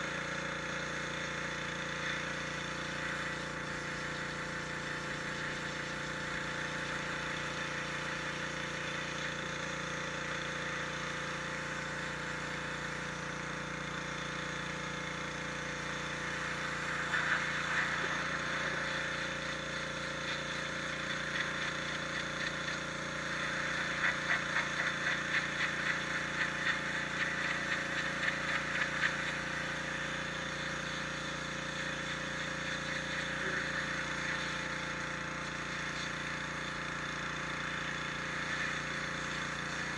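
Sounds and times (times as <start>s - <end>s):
pressure washer pump hum: 0.0s - 39.9s
water jet hissing on stone: 14.3s - 39.9s.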